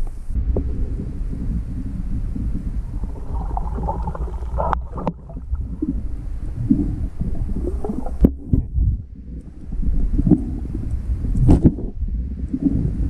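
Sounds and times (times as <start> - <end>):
underwater rumble and gurgling: 0.0 - 13.0
sharp clicks underwater: 2.4 - 6.0, 6.6 - 12.9.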